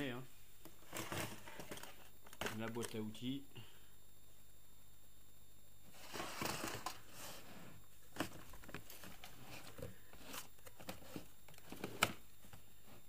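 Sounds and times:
rummaging in plastic toolbox: 0.8 - 3.0.

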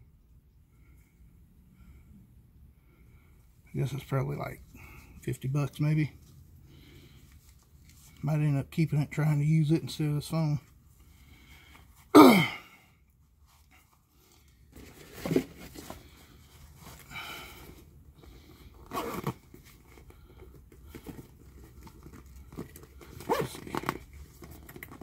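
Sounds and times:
camera case handling noises: 14.7 - 16.2, 19.2 - 25.0.

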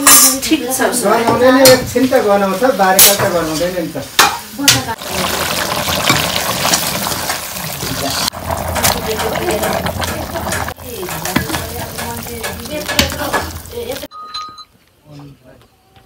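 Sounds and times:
meat sizzling: 2.0 - 14.1.

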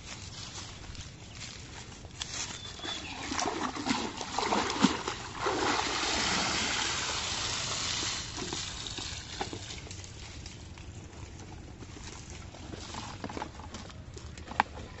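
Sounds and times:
basket splashing in water: 3.0 - 9.4
water pouring and draining: 3.4 - 8.4.

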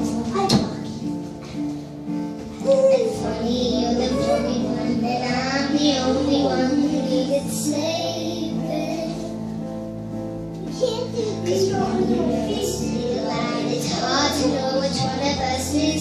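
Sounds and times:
girl singing slow song: 2.4 - 9.7, 10.6 - 16.0.

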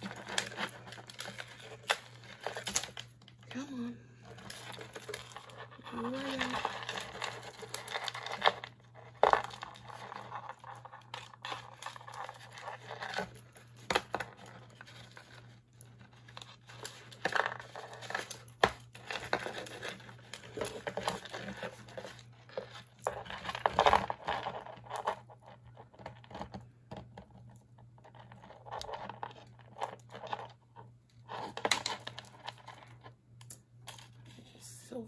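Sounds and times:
hands rummaging through jewelry: 0.0 - 3.4, 4.2 - 34.4
chains and beads rattling: 4.2 - 14.3.

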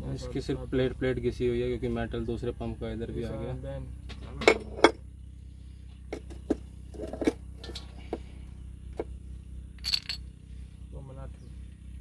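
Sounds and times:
steady low hum: 0.0 - 12.0
scraping clatter: 6.1 - 8.2
light metallic clicks and clinks: 9.8 - 10.2.

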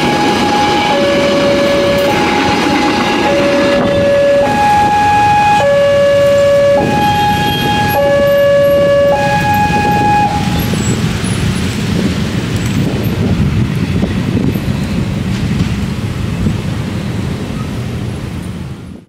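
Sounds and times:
two-tone electronic warning alarm: 0.0 - 11.0
motorbike engines rumbling: 0.0 - 19.0
road traffic: 0.0 - 19.0.

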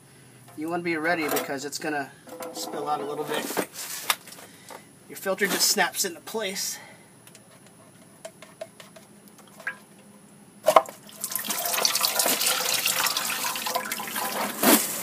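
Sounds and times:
fluid gushing out: 11.1 - 14.9.

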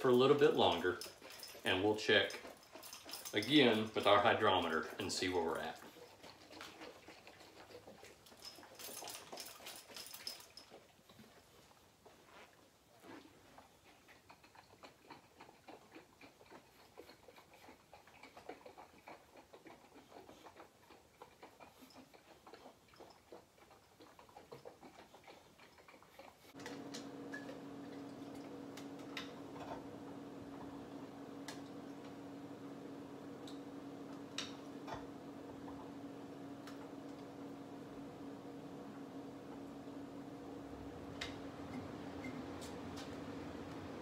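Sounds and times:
low hum: 26.6 - 44.0.

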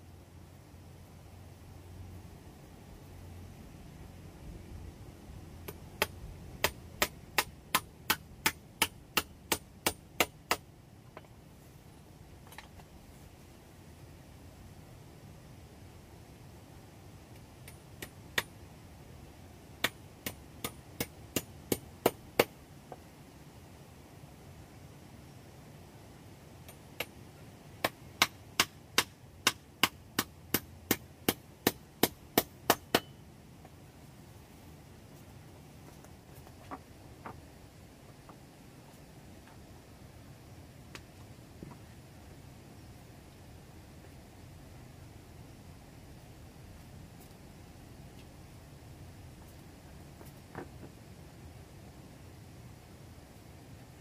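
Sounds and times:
hammer striking wooden block: 27.8 - 33.2.

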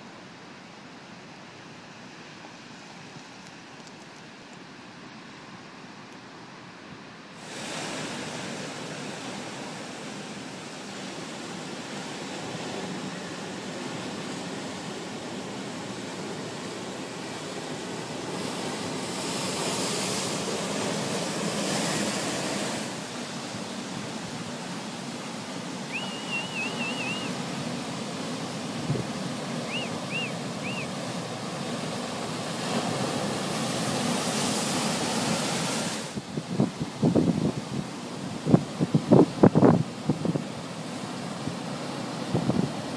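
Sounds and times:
surf breaking on rocks: 7.4 - 40.4
bird chirping: 25.9 - 27.3, 29.7 - 30.9
wind buffeting microphone: 36.2 - 40.6.

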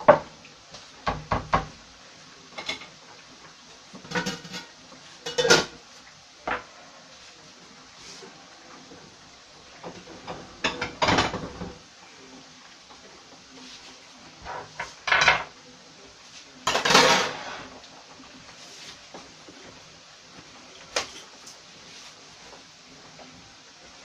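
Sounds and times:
clinks and knocks of kitchenware: 4.0 - 5.8.

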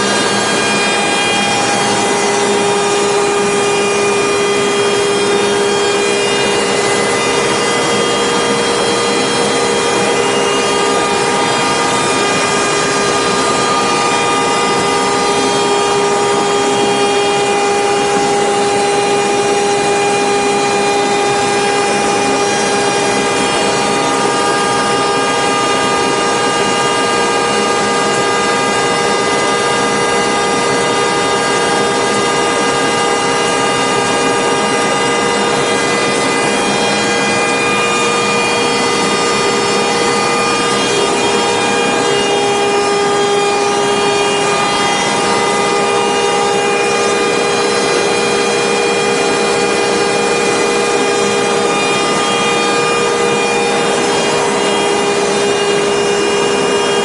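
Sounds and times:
industrial machine running: 0.0 - 57.0
steady machine whine: 0.0 - 57.0.

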